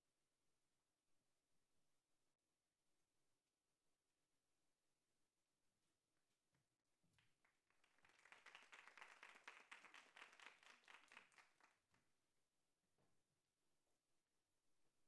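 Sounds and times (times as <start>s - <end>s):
faint applause: 7.2s - 12.0s.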